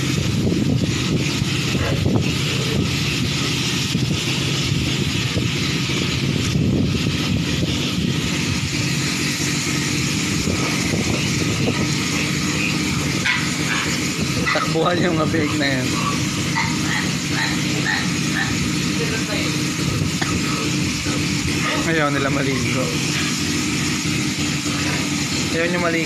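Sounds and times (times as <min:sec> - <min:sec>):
pressure washer motor humming: 0:00.0 - 0:26.0
water jet hissing on concrete: 0:00.0 - 0:26.0
piglets squealing: 0:15.8 - 0:18.6.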